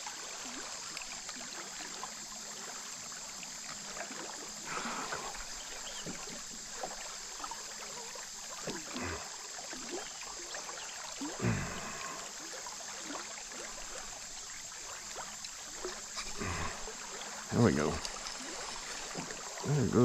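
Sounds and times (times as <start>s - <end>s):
river current running: 0.0s - 20.0s.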